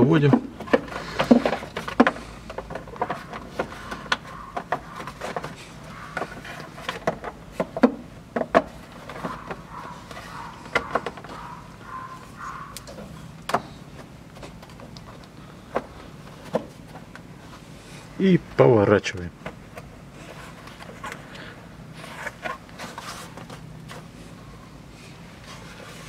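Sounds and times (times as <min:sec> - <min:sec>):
plastic shroud clicking and knocking: 0:00.3 - 0:11.5.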